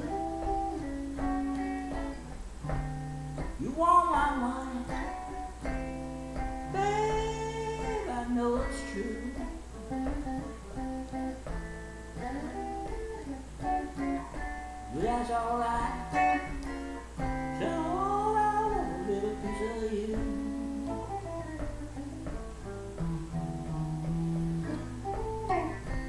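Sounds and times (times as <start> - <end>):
swamp-rock guitar playing: 0.0 - 26.0
man singing: 3.6 - 5.5, 6.7 - 9.6, 14.9 - 16.6, 17.5 - 21.0.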